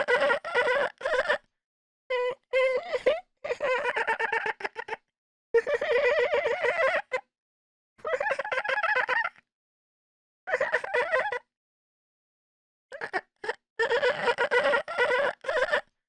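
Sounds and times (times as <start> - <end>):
baby giggling: 13.8 - 15.8.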